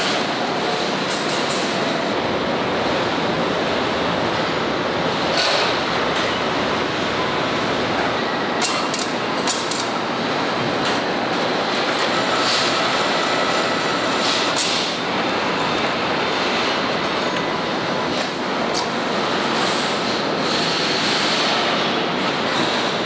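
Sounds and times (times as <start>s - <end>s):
assembly line din: 11.2s - 14.6s.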